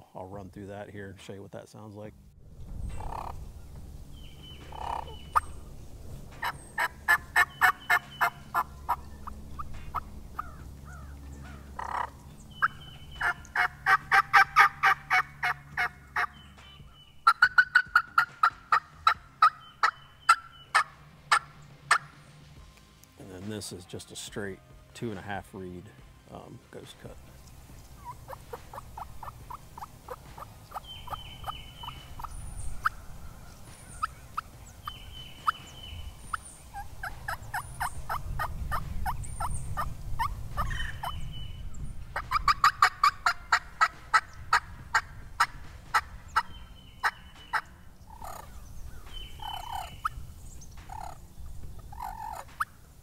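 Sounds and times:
turkey call yelps: 3.0s - 3.4s, 4.7s - 5.6s, 6.4s - 16.4s, 17.2s - 22.1s, 28.0s - 33.0s, 36.7s - 41.2s, 42.2s - 48.6s, 49.4s - 50.2s, 50.9s - 51.2s, 51.9s - 52.8s.

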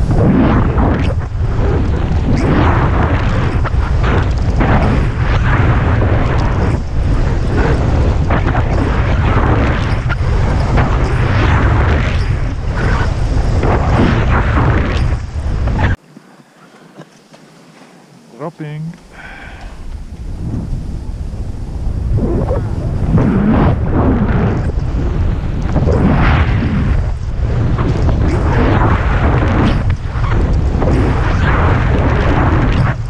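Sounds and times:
heavy wind buffeting microphone: 0.0s - 16.6s, 19.0s - 33.0s
skis hissing through snow: 16.0s - 22.0s.

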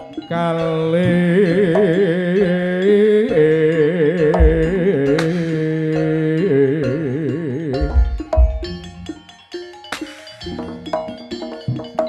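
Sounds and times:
shawm playing ornamented melody: 0.0s - 12.0s
sharp crack: 5.2s - 5.8s, 9.9s - 10.4s.

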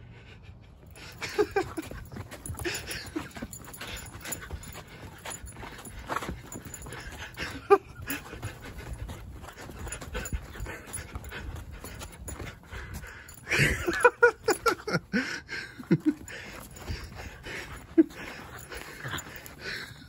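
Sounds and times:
puppy panting: 0.7s - 20.0s
footsteps scuffing on dry ground: 1.6s - 14.3s
puppy whining: 15.9s - 20.0s.

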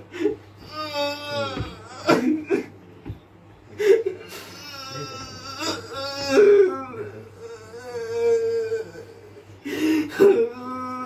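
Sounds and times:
man wailing and moaning: 0.7s - 2.4s, 4.6s - 9.2s
man sobbing: 3.8s - 11.0s.

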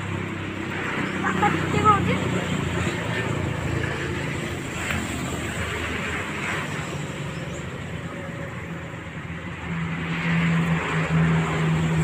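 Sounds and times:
vehicle engine hum: 0.0s - 12.0s.

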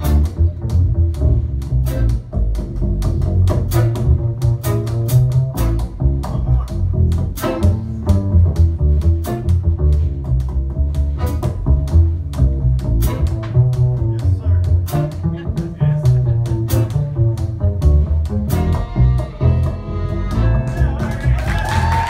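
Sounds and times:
drum kit and cymbals: 0.0s - 22.0s
guitars: 0.0s - 22.0s
plucked double bass: 0.0s - 22.0s
violin: 11.0s - 12.2s, 12.8s - 22.0s
accordion: 18.5s - 21.0s.

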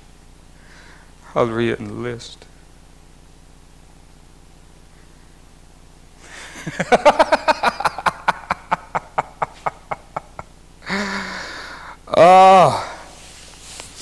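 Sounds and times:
voiced breath: 0.6s - 1.1s, 10.8s - 12.1s
man laughing: 6.2s - 11.4s.

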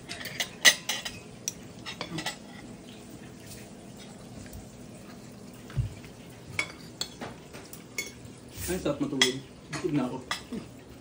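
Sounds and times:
tableware clink: 0.1s - 2.4s, 8.0s - 8.2s.

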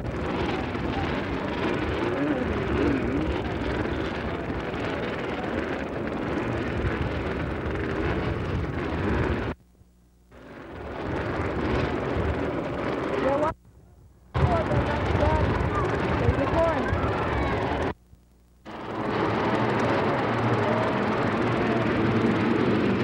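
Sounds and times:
motorcycle engines revving: 0.0s - 9.6s, 10.3s - 13.6s, 14.4s - 18.0s, 18.7s - 23.0s.

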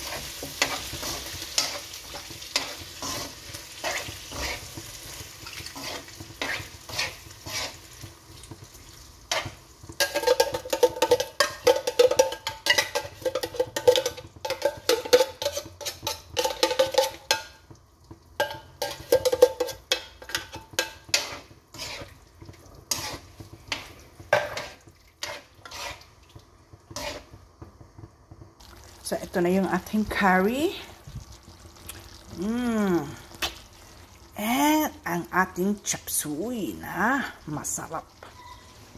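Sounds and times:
pan sizzling: 0.0s - 38.9s
metal-on-metal scraping squeal: 38.2s - 38.9s.

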